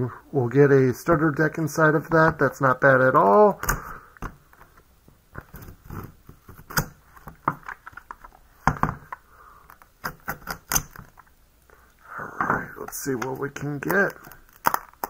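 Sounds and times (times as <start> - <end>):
plastic wrap crinkling: 12.8 - 15.0.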